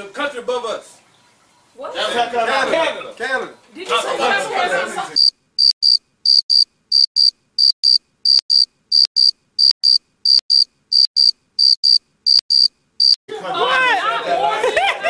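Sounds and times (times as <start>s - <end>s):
crickets chirping: 5.2s - 13.2s.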